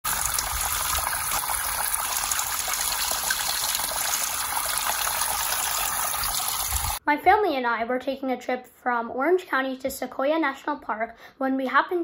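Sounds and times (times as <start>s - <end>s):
water trickling and dripping: 0.0s - 7.0s.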